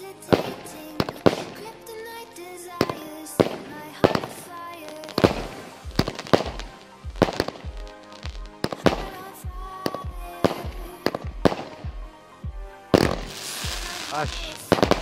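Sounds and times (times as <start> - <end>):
fireworks bursting: 0.0 - 12.1, 12.9 - 15.0
music with steady beat: 5.1 - 15.0.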